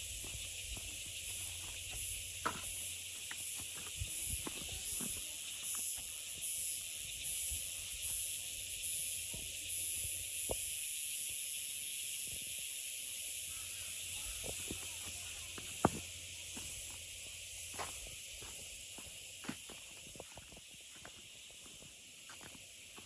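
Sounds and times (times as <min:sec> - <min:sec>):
insect chorus: 0:00.0 - 0:23.0
footsteps on grass: 0:14.8 - 0:23.0.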